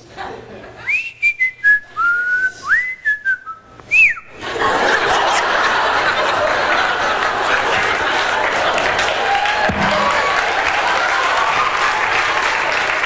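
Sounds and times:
person whistling gliding notes: 0.9 - 4.3
audience laughing: 4.3 - 12.9
audience applause: 5.0 - 13.0.

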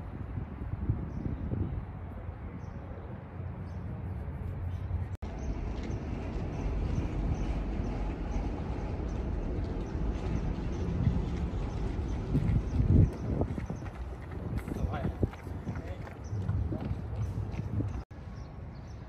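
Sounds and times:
steady low outdoor rumble: 0.0 - 19.0.

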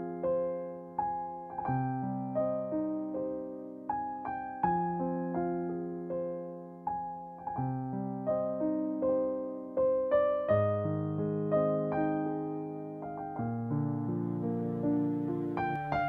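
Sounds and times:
slow solo piano: 0.0 - 16.0.

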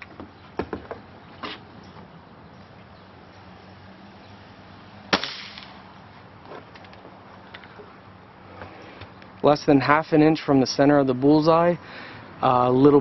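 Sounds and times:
air rifle shot: 5.1 - 5.8.

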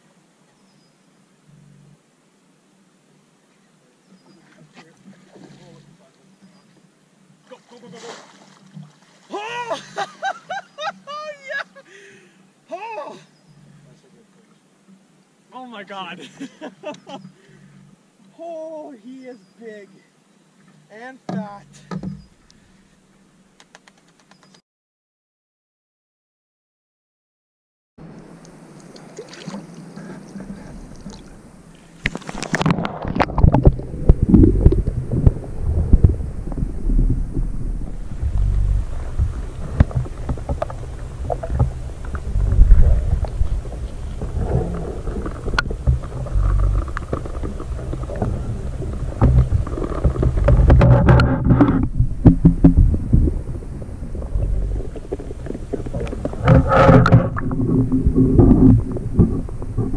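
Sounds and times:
water splashing: 4.2 - 6.2, 7.4 - 10.0, 28.5 - 59.9
water drips: 28.4 - 31.4
underwater rumbling: 28.8 - 59.9.

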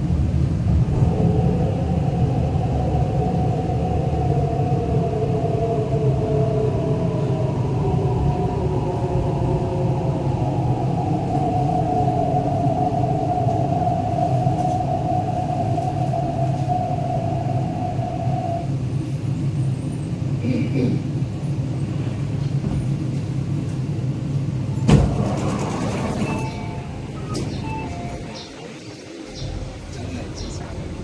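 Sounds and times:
train rumble: 0.0 - 31.0
train whine: 0.0 - 31.0
train doors opening thud: 22.4 - 23.0, 24.8 - 28.4.

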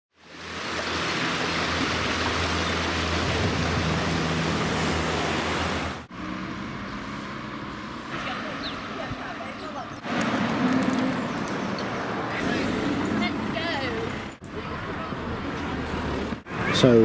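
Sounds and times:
road ambience: 0.1 - 17.0
stream rushing over rocks: 0.2 - 6.1.

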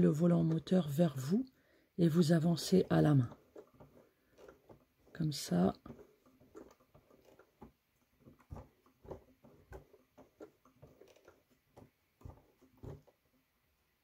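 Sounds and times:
sewing machine soft clicks: 3.2 - 13.2.

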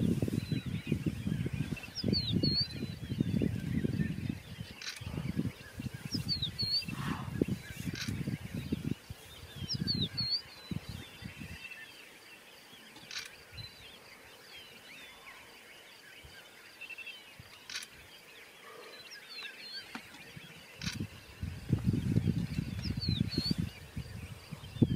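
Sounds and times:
gusty low rumbling: 0.0 - 11.6, 20.8 - 24.9
birds chirping and calling: 0.0 - 24.9
faint sharp clicks: 12.9 - 13.4, 17.5 - 18.0.

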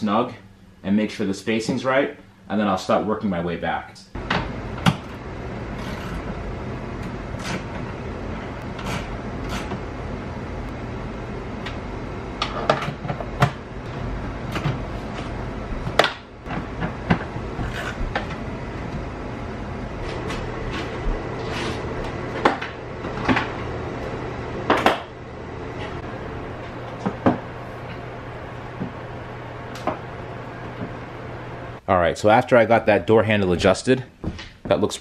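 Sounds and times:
low hum: 4.1 - 32.0.

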